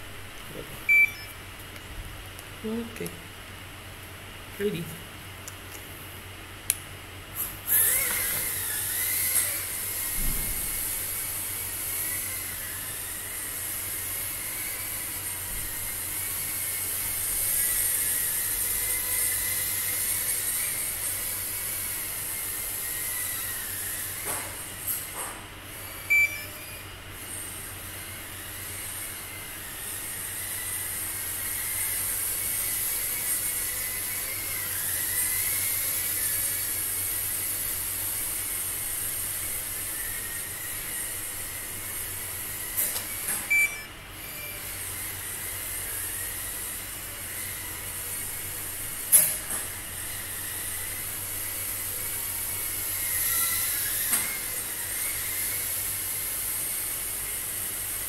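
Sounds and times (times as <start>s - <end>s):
drone propellers whining: 7.7s - 24.6s.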